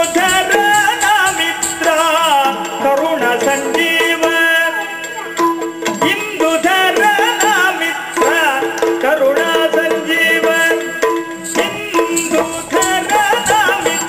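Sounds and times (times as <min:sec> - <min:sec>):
drum strokes: 0:05.4 - 0:14.0.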